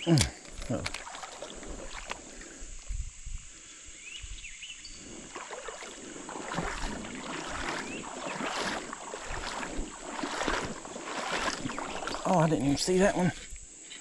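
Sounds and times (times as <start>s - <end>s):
creek water splashing: 0.0s - 13.7s
wind buffeting microphone: 1.5s - 5.4s, 6.0s - 13.6s.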